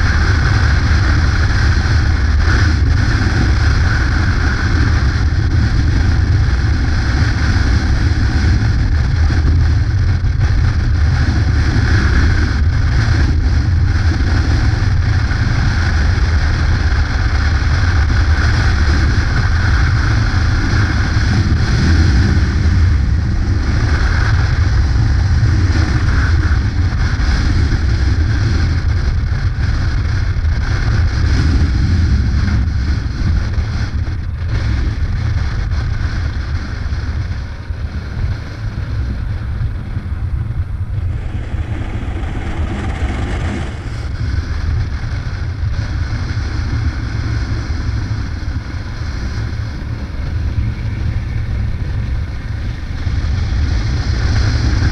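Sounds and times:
motorcycle engine drone: 0.0s - 54.9s
wind rushing over microphone: 0.0s - 54.9s.

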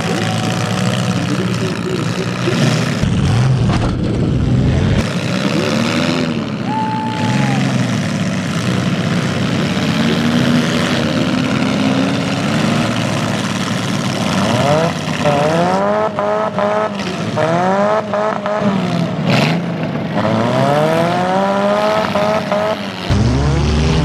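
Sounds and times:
deep rumble: 0.0s - 5.1s, 23.1s - 24.0s
car engines revving: 0.0s - 24.0s.

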